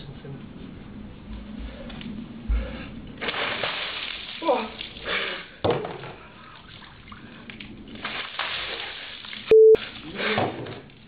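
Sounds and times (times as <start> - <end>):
water spattering: 3.2 - 5.4, 6.2 - 11.0
electronic bleep: 9.5 - 9.8.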